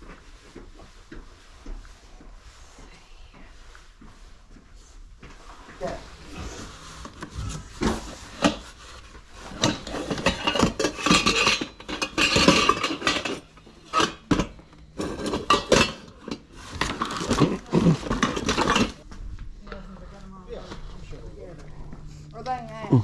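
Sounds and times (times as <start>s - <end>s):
pots and pans clanking: 9.4s - 19.0s.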